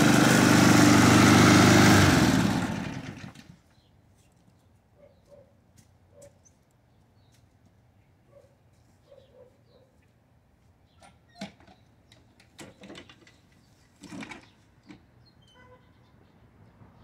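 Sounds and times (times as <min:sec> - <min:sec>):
mower pushed through tall grass: 0:00.0 - 0:03.6.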